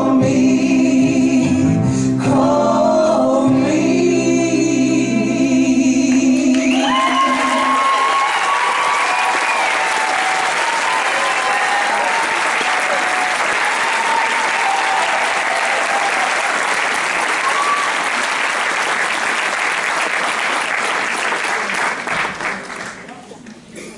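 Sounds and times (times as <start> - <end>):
audience applauding: 6.5 - 23.4.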